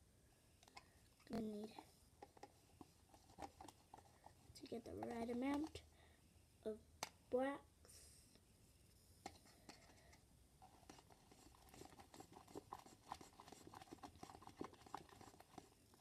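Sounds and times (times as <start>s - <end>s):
slime being stirred in a cup: 0.6s - 5.9s, 9.3s - 16.0s.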